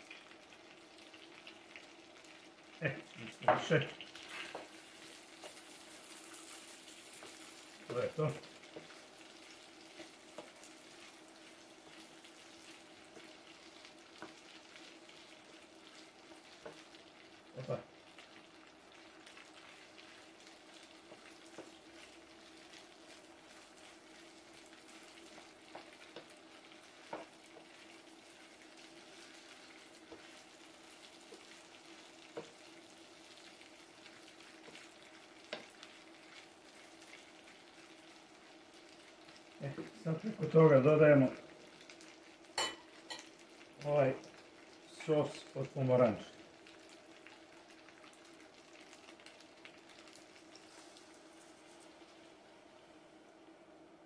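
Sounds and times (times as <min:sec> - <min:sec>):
chicken frying in a pan: 0:00.0 - 0:54.0
wooden spoon knocking on pan: 0:27.0 - 0:27.7.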